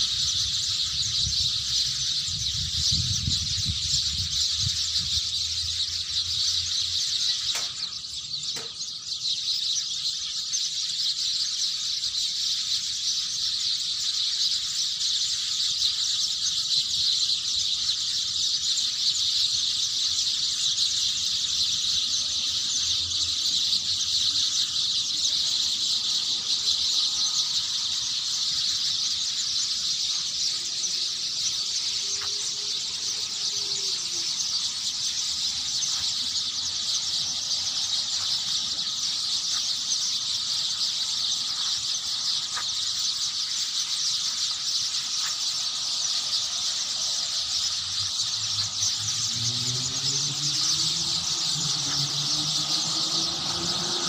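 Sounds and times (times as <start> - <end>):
shrill animal chorus: 15.7 - 54.0.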